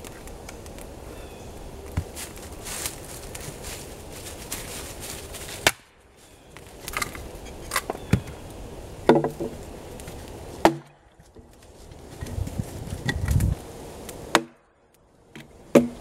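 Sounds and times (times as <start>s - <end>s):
axe chopping wood: 5.6s - 5.9s, 9.1s - 9.6s, 10.6s - 11.0s, 14.3s - 14.6s, 15.4s - 16.0s
split wood pieces knocking: 9.1s - 9.6s, 10.6s - 11.5s, 15.4s - 16.0s.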